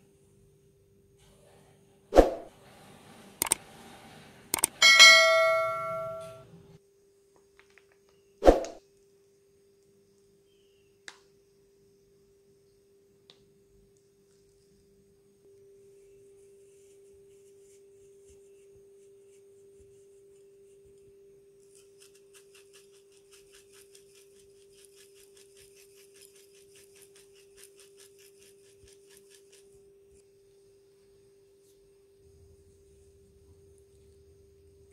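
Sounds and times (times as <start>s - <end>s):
pepper grinder gritty scratches: 21.6s - 29.9s.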